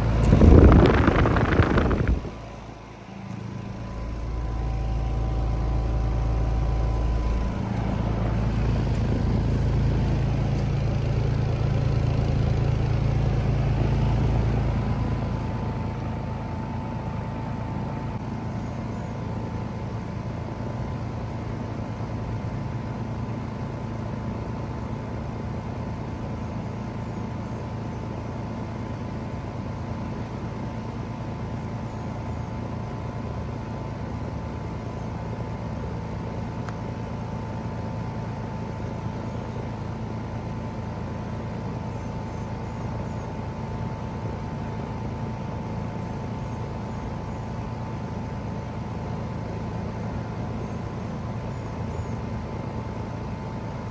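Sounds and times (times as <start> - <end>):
compressor humming: 0.0 - 53.9
condenser fan blowing: 0.0 - 53.9.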